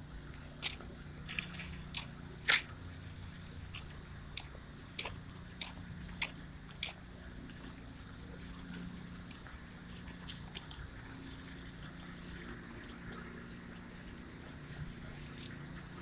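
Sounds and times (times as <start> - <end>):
low steady hum: 0.0 - 16.0
footsteps on paving: 0.2 - 7.8.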